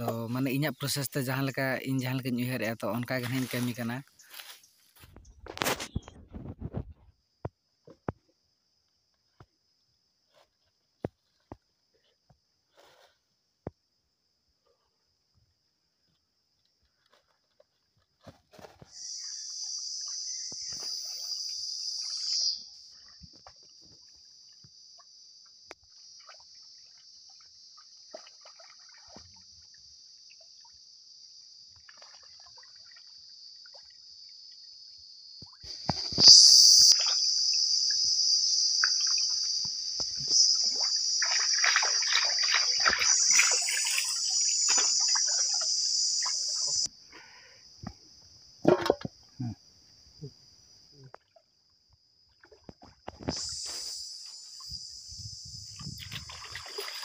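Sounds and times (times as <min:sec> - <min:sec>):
water splashing and trickling: 0:16.5 - 0:31.0, 0:31.6 - 0:34.8, 0:36.8 - 0:46.9, 0:50.5 - 0:53.8, 0:54.5 - 0:57.0
high-pitched insect drone: 0:18.8 - 0:23.4, 0:32.5 - 0:48.3, 0:53.0 - 0:57.0.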